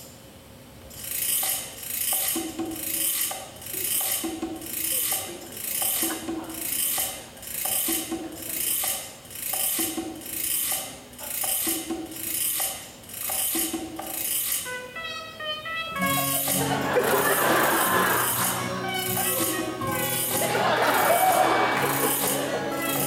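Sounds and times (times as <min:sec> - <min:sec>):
repeating two-note figure: 0:15.8 - 0:17.1, 0:17.8 - 0:20.8.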